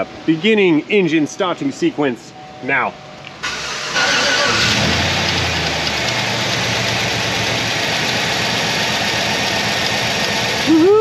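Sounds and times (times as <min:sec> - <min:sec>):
truck engine idling: 0:03.4 - 0:11.0.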